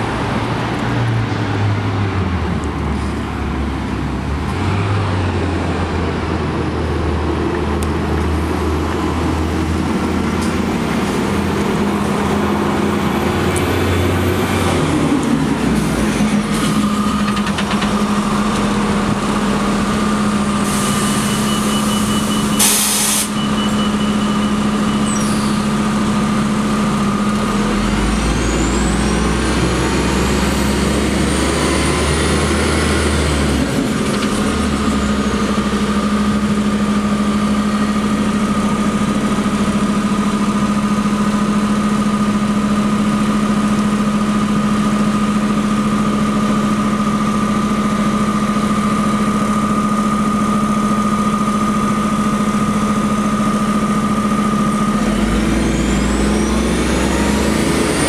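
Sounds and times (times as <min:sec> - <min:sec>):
bus engine idling: 0:00.0 - 0:58.0
compressed air hiss: 0:22.6 - 0:23.4.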